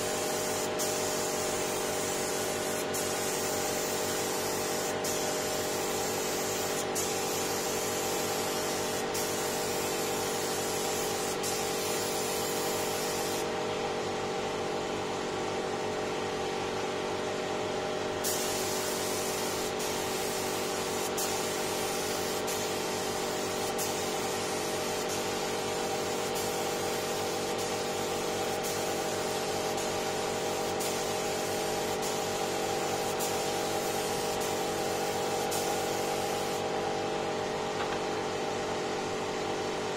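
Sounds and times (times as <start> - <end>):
spray gun hissing: 0.0 - 13.5, 18.2 - 36.7
steady mechanical hum: 0.0 - 39.9.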